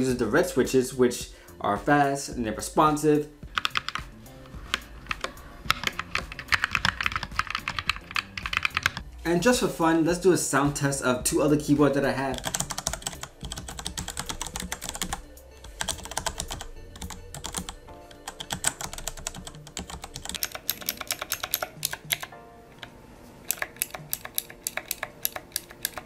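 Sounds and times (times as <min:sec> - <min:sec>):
mechanical keyboard typing: 0:03.5 - 0:04.1, 0:04.7 - 0:09.0, 0:12.3 - 0:22.9, 0:23.5 - 0:26.0.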